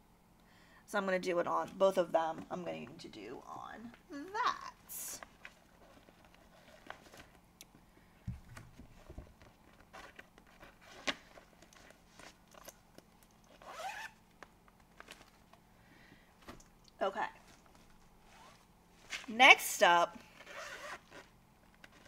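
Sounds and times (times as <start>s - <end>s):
short zipper-like rasp: 13.6s - 14.2s, 18.3s - 18.6s, 20.4s - 21.3s.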